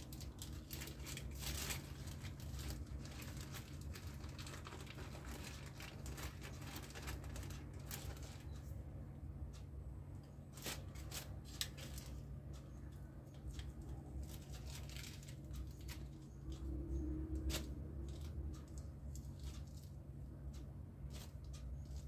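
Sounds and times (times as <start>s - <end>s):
plastic film rustling: 0.0s - 8.8s, 10.5s - 12.6s, 13.3s - 20.0s.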